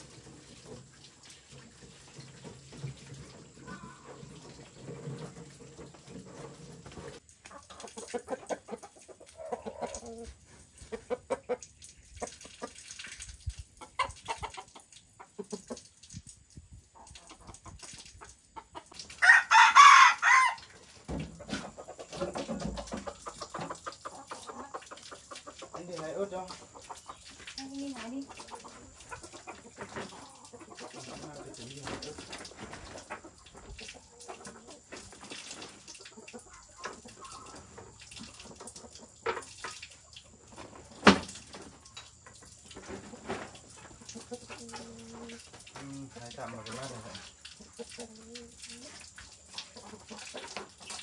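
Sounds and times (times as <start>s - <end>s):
chickens clucking: 0.0s - 51.0s
rooster crowing: 19.2s - 20.7s.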